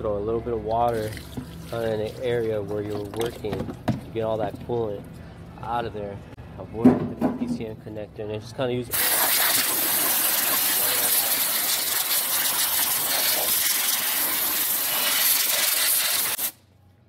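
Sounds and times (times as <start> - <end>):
hose spray hissing: 8.9 - 16.6.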